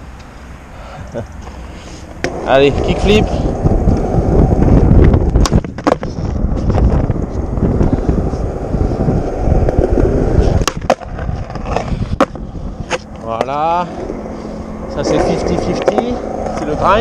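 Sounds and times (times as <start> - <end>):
skateboard wheels rolling: 1.4 - 17.0
skateboard trucks grinding ledge: 2.1 - 17.0
skateboard clacks: 5.0 - 7.3, 9.6 - 14.2.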